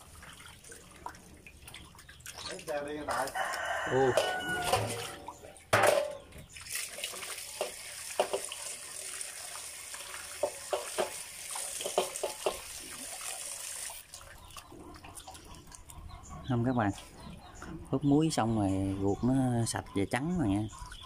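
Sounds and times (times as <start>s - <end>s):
water splashing from basin: 0.0s - 16.0s
tap running into basin: 6.9s - 13.9s.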